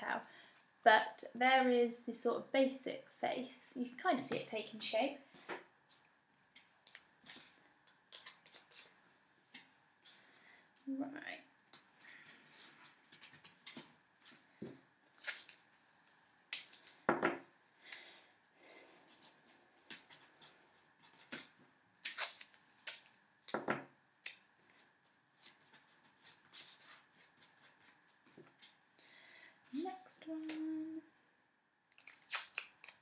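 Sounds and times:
masking tape ripping: 6.9 - 9.0, 15.1 - 17.1, 21.1 - 23.2, 32.0 - 33.0
card rustling and crinkling: 11.8 - 17.1.

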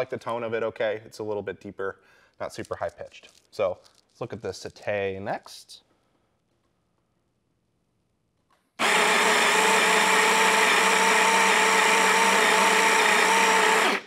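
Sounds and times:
coffee grinder motor whine: 8.8 - 14.0.

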